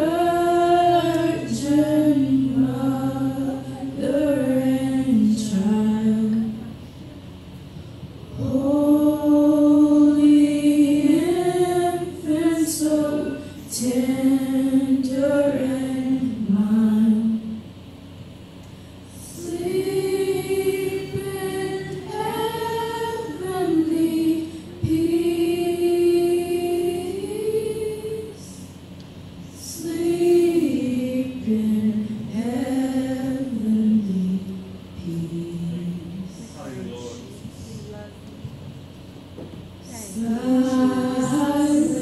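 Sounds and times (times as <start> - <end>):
church choir singing: 0.0 - 6.4, 8.4 - 17.4, 19.2 - 28.5, 29.6 - 34.3, 40.1 - 42.0.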